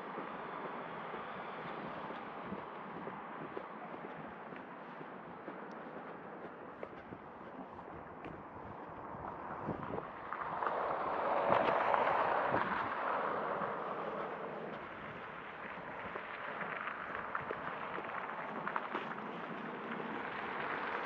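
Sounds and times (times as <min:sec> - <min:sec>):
footsteps on paving stones: 0:00.0 - 0:21.0
vehicle passing: 0:00.0 - 0:21.0.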